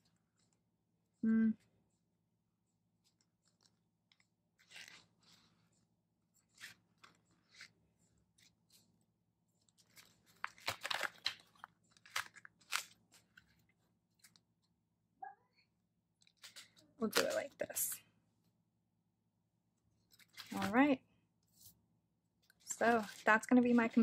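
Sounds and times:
plastic sleeves and photos rustling: 2.6 - 15.0, 16.1 - 18.6, 19.8 - 24.0.

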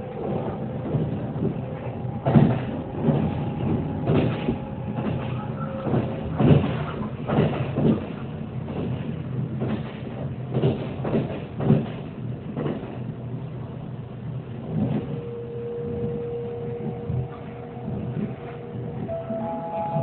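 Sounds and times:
train knocks and jolts: 0.0 - 15.2
train wheels rumbling on track: 0.0 - 20.0.

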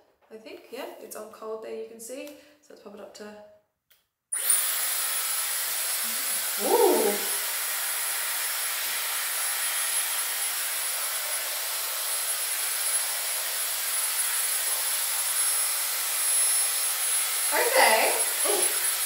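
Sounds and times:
hair styler blowing air with whine: 4.4 - 19.0.

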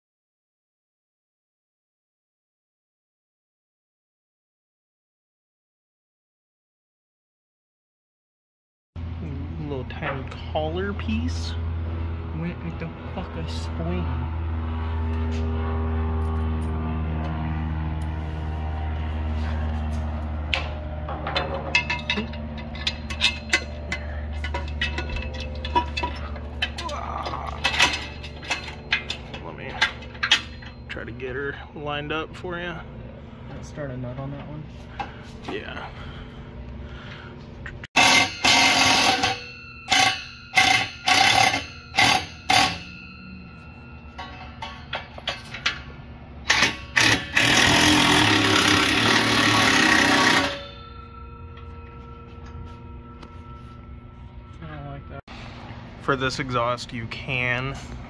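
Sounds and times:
steady low hum: 9.0 - 58.0
metal parts clinking: 21.1 - 31.0, 38.0 - 51.7
power ratchet running: 38.0 - 43.3, 46.4 - 51.1.

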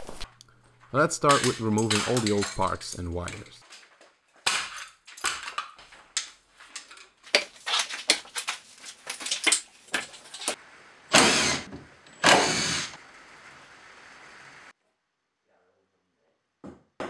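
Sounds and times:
wiring pulled off wall rattling: 0.0 - 10.6
cordless drill running: 11.1 - 13.0.

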